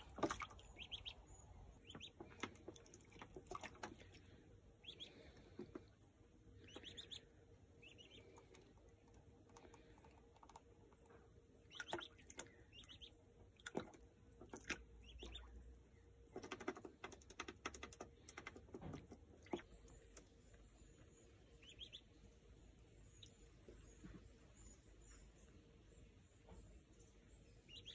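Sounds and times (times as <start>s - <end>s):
water splashing and pattering: 0.0s - 5.9s, 11.7s - 15.5s
duckling peeping: 0.0s - 25.3s, 27.6s - 27.9s.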